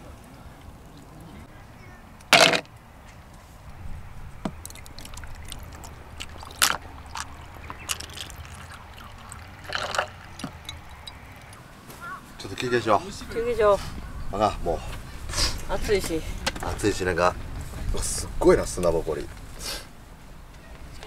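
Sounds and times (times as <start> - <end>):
coffee trickling over ice: 4.5 - 11.6
ice clicking and cracking: 4.6 - 11.0.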